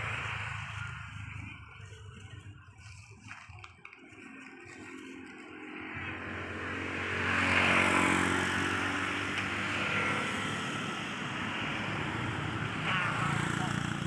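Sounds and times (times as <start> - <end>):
vehicle engine passing by: 4.4 - 14.0.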